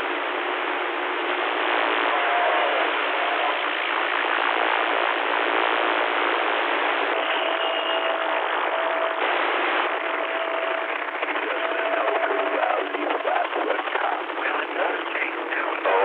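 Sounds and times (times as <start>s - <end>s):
radio static hiss: 0.0s - 16.0s
faint whistle tone: 7.2s - 8.1s.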